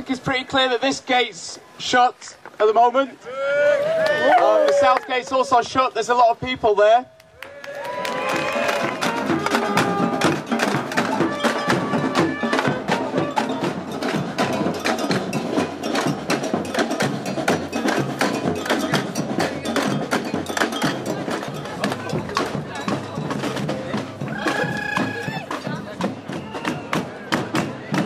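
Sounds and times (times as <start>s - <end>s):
marching percussion band: 8.1s - 28.0s.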